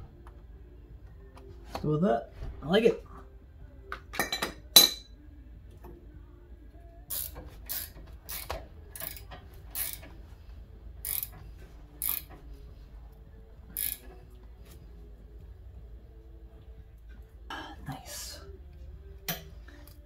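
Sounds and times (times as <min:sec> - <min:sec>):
low steady hum: 0:00.0 - 0:20.0
mechanical ratcheting clicks: 0:07.1 - 0:10.1, 0:11.0 - 0:11.4, 0:12.0 - 0:12.4, 0:13.7 - 0:14.2.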